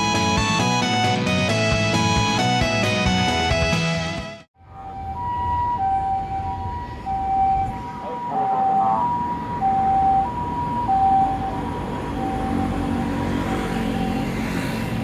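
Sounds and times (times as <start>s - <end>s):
ambulance siren two-tone: 4.6s - 14.5s
city traffic rumble: 4.6s - 15.0s.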